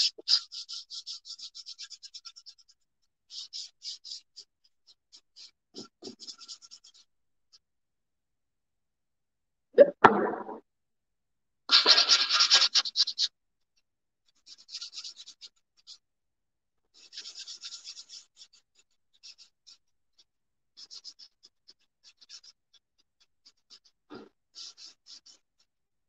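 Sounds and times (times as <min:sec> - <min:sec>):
sanding block scratching pot: 0:11.7 - 0:13.2.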